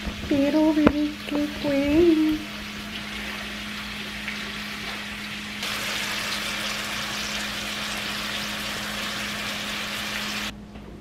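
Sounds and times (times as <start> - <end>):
meat sizzling in a skillet: 5.6 - 10.5.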